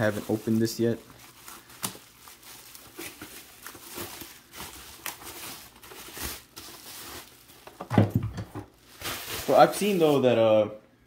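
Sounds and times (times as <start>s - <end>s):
plastic packaging crinkling: 0.0s - 7.9s, 8.7s - 10.5s.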